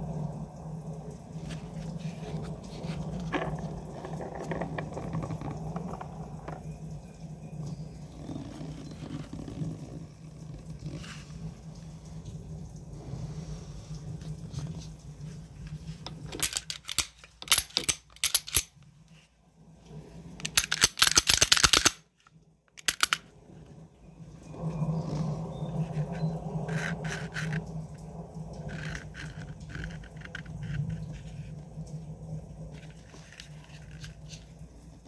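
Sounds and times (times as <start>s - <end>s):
low steady hum: 0.0s - 35.0s
pistol clicks and rattles: 16.2s - 18.8s, 20.4s - 22.1s, 22.8s - 23.2s.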